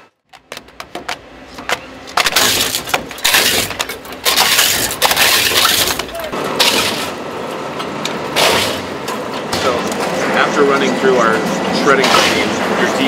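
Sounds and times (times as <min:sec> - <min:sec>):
industrial shredder crunching plastic: 0:02.0 - 0:07.3, 0:08.0 - 0:10.2.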